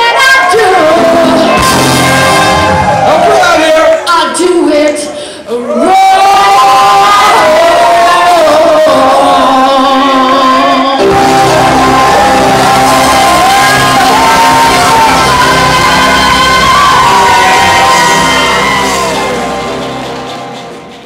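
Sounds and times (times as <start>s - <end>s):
woman singing: 0.0s - 19.4s
trumpet: 0.2s - 3.8s, 11.0s - 21.0s
bass and drums: 0.6s - 3.7s, 11.0s - 21.0s
electric guitar: 10.6s - 21.0s.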